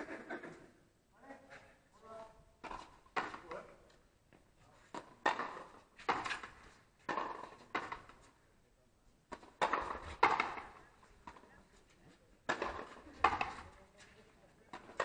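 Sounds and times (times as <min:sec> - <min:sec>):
ball cracking off rackets and wall: 0:02.6 - 0:03.6, 0:04.9 - 0:08.2, 0:09.3 - 0:11.4, 0:12.4 - 0:13.7.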